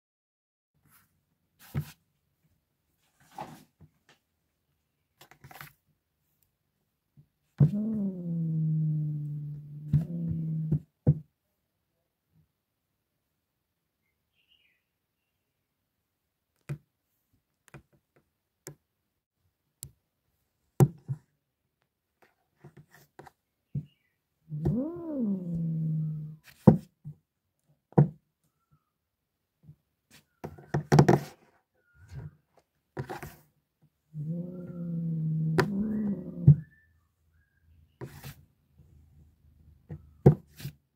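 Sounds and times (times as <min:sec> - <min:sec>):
cat yowling: 0:07.6 - 0:10.8, 0:24.5 - 0:26.4, 0:34.2 - 0:36.9.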